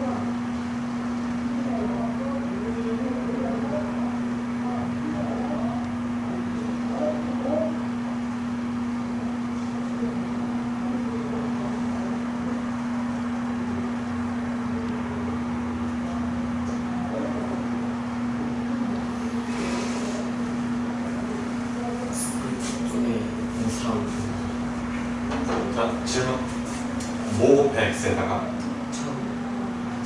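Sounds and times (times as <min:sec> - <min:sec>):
faint indistinct voices: 0:00.0 - 0:08.3, 0:08.9 - 0:24.4
low steady machine hum: 0:00.0 - 0:30.0.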